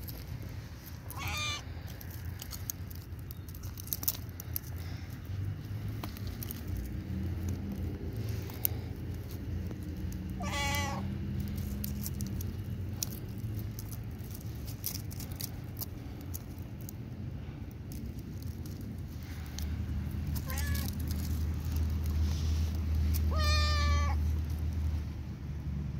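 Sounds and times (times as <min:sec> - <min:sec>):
cat meowing: 0:01.1 - 0:01.6, 0:10.4 - 0:11.1, 0:20.4 - 0:21.0, 0:23.2 - 0:24.2.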